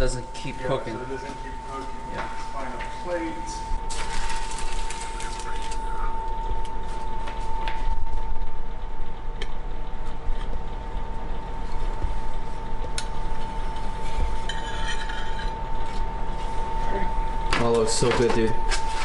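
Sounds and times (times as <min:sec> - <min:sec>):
steady hum: 0:00.0 - 0:19.0.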